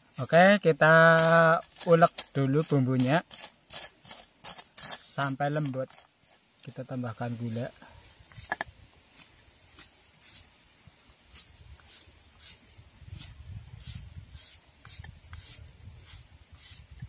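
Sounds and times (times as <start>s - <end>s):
knife scraping sugar block: 1.1s - 6.4s, 8.4s - 10.5s, 11.3s - 16.9s.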